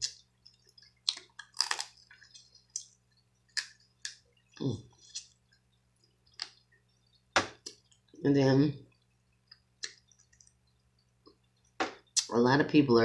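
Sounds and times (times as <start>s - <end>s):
crab shells cracking: 0.0s - 4.2s.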